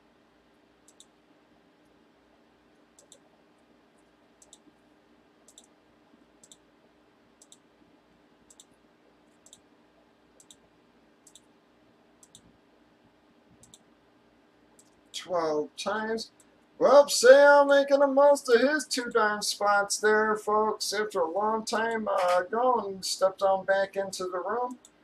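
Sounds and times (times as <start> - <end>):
computer mouse clicking: 0.8 - 1.2, 3.0 - 3.3, 4.0 - 4.7, 5.4 - 5.8, 6.4 - 6.7, 7.4 - 7.7, 8.5 - 9.7, 10.4 - 11.5, 12.2 - 12.6, 13.5 - 13.9, 14.8 - 15.0.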